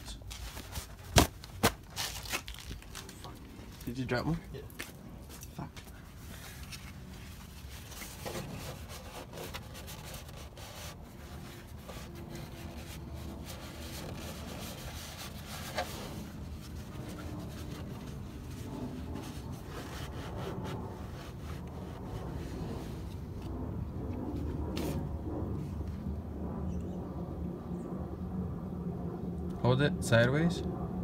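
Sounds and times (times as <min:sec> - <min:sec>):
cloth rubbing against plastic: 0:06.0 - 0:23.2.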